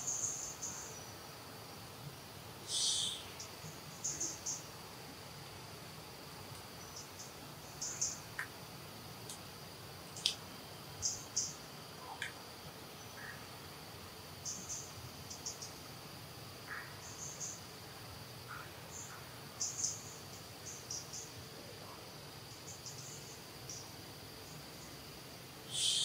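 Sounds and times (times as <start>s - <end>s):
short high insect chirps: 0.0s - 1.1s, 2.6s - 4.7s, 25.7s - 26.0s
insects droning: 0.0s - 26.0s.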